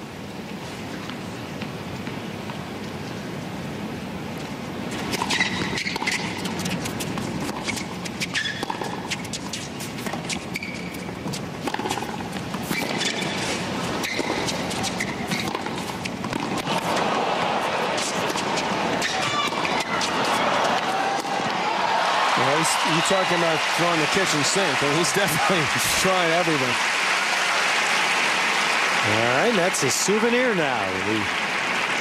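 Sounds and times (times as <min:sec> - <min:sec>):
shoes squeaking on court: 0:04.4 - 0:21.3
racket striking tennis ball: 0:05.0 - 0:21.6
crowd murmur: 0:16.6 - 0:26.8.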